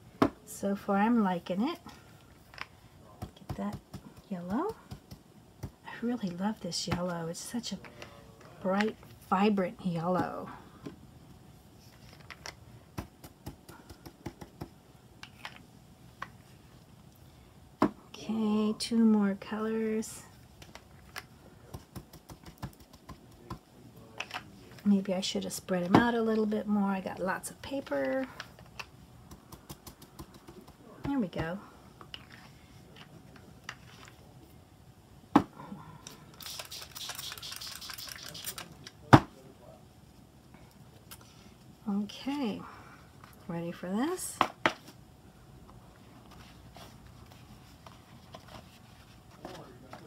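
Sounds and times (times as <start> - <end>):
spray bottle squirts: 36.4 - 38.6.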